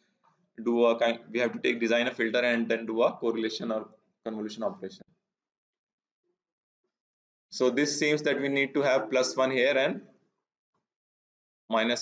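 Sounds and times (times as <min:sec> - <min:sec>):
man speaking: 0:00.6 - 0:05.0, 0:07.6 - 0:10.0, 0:11.7 - 0:12.0.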